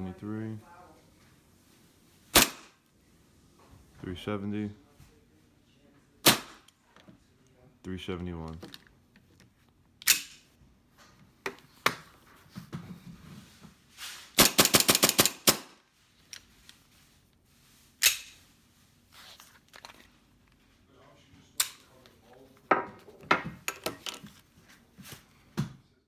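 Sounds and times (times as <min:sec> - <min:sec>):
airsoft pistol shots: 0:02.3 - 0:02.8, 0:06.2 - 0:06.6, 0:14.4 - 0:15.8.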